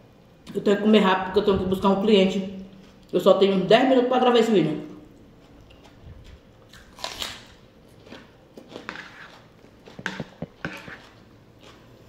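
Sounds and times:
crunchy chewing: 0:05.1 - 0:12.0
crunchy bite into raw onion: 0:06.7 - 0:10.4.

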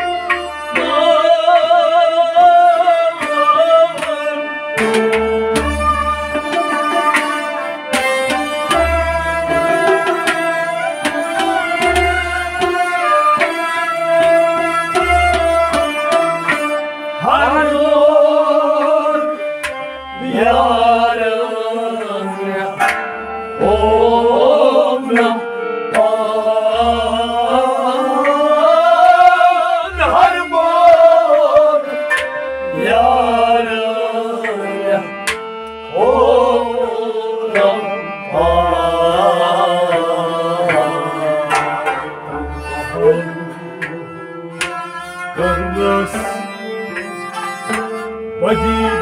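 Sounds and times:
harmonium: 0:00.0 - 0:49.0
string instrument: 0:00.0 - 0:49.0
men singing devotional song: 0:00.8 - 0:04.6, 0:17.2 - 0:19.5, 0:20.1 - 0:22.9, 0:23.6 - 0:47.2, 0:48.4 - 0:49.0.

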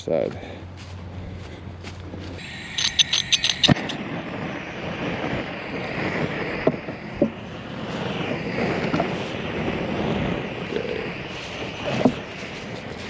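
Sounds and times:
sharp clicks: 0:02.4 - 0:04.0
gas torch rushing: 0:02.4 - 0:13.0.

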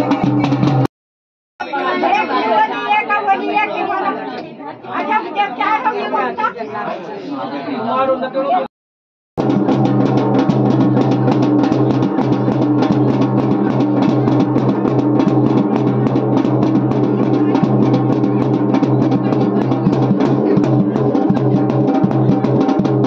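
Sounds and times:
hand drum beaten fast: 0:00.0 - 0:00.9, 0:09.4 - 0:23.0.

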